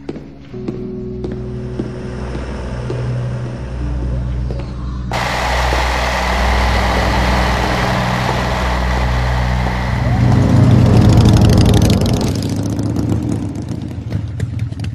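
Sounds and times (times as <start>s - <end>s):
rushing airflow: 5.1s - 12.2s
piston aircraft engine running: 5.1s - 12.8s.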